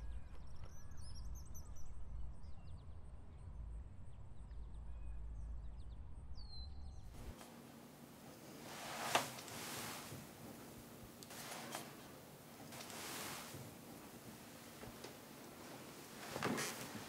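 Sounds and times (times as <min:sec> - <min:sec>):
faint steady hiss: 0:07.2 - 0:17.0.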